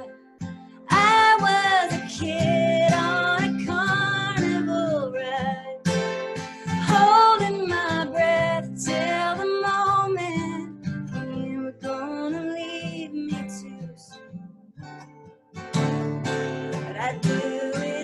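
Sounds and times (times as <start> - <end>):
woman singing: 0.0 - 0.2, 0.8 - 14.3, 16.7 - 18.0
acoustic guitar strumming: 0.0 - 18.0.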